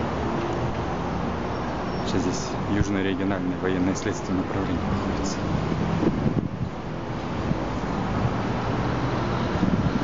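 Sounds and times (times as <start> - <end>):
city street traffic: 0.0 - 10.0
wind on microphone: 5.4 - 10.0.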